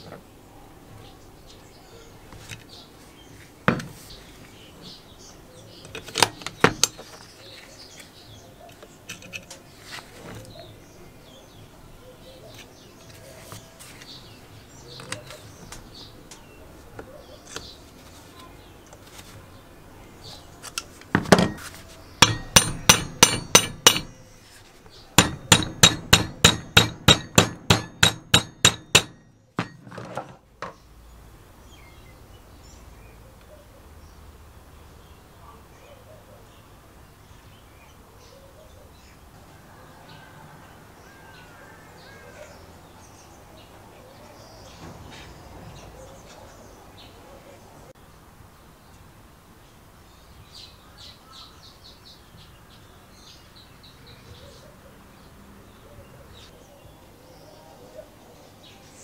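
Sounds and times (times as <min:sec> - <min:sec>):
loud knock: 0:22.2 - 0:24.2, 0:25.2 - 0:30.8
sharp metallic strikes: 0:22.2 - 0:24.3, 0:25.2 - 0:29.8.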